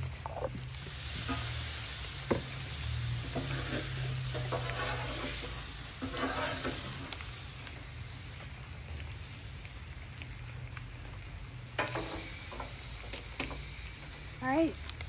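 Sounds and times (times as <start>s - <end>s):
steady sizzling: 0.0s - 15.0s
metal spatula scraping griddle: 1.2s - 1.8s, 2.6s - 7.2s, 11.8s - 12.7s.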